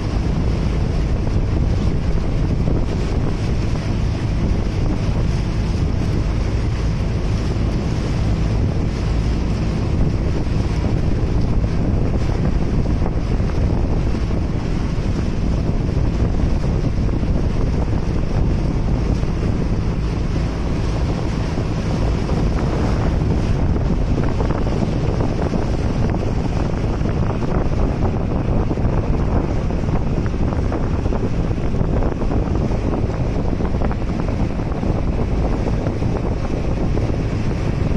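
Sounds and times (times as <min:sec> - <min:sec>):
boat engine drone: 0:00.0 - 0:37.9
water rushing along hull: 0:00.0 - 0:37.9
wind buffeting microphone: 0:00.0 - 0:37.9.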